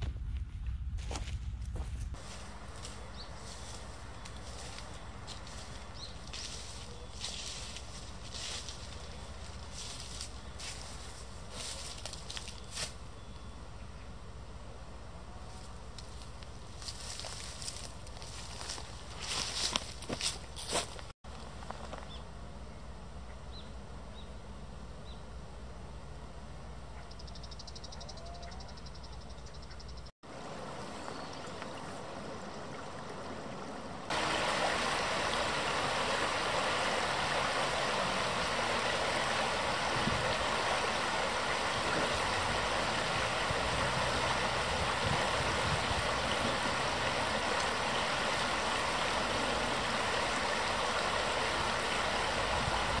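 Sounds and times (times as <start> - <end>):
quiet outdoor ambience: 0.0 - 53.0
river rushing over rocks: 34.1 - 53.0.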